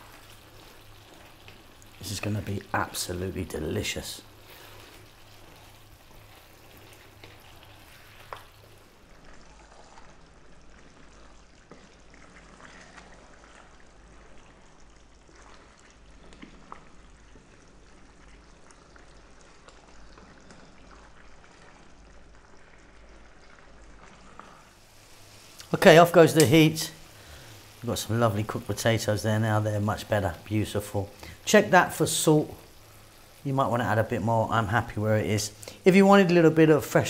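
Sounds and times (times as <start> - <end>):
stew bubbling in a pan: 0.0 - 37.0
wooden spoon stirring: 0.0 - 37.0.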